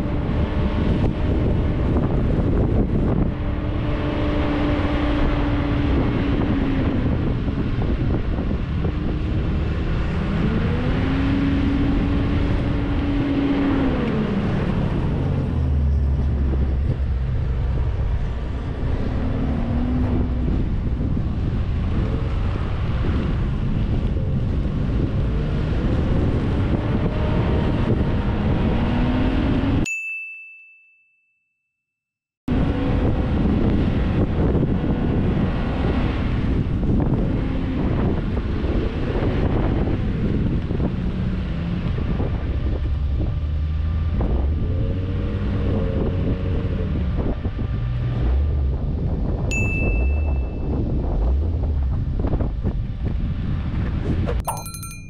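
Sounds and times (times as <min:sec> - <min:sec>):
car engine revving: 0:00.0 - 0:29.8
wind buffeting microphone: 0:00.0 - 0:29.8, 0:32.5 - 0:55.0
bright ding: 0:29.9 - 0:31.5, 0:49.5 - 0:50.7, 0:54.4 - 0:55.0.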